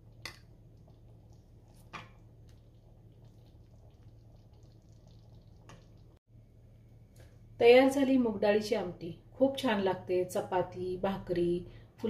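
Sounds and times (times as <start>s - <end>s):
wet slops and drips: 0.0s - 6.2s.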